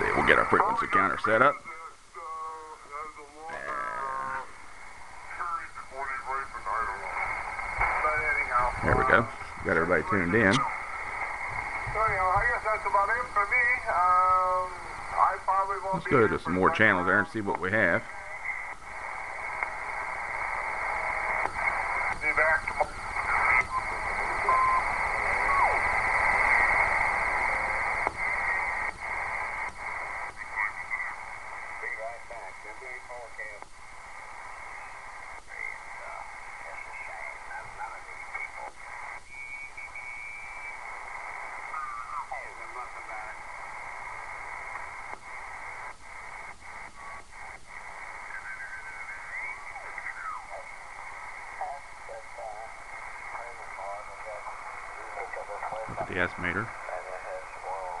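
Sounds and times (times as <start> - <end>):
radio static: 0.0 - 58.0
steady radio whistle: 5.2 - 17.2, 18.0 - 58.0
falling radio whistle: 23.2 - 28.9, 38.6 - 40.9, 48.1 - 50.6.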